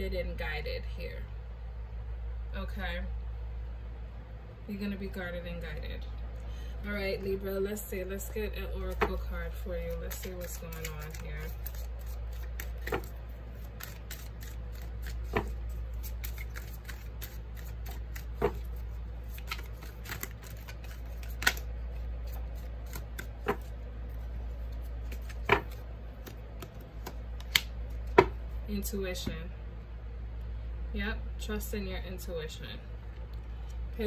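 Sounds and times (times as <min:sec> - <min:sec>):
cards fluttering when shuffled: 0:08.9 - 0:28.2
deck of cards snapping: 0:09.8 - 0:23.7, 0:24.7 - 0:28.4.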